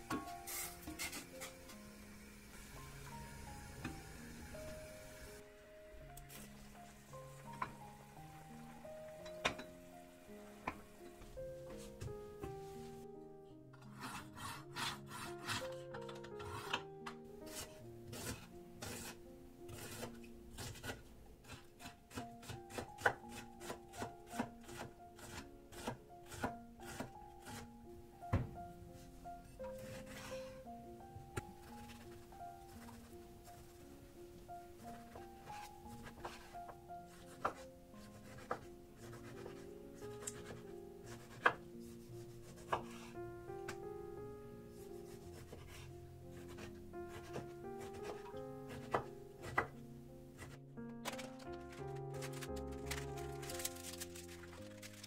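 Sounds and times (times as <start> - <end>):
soft background music: 0.0 - 55.0
knife chopping on wooden board: 18.1 - 27.1, 38.2 - 39.6, 40.2 - 41.6, 42.5 - 43.1, 46.4 - 49.7.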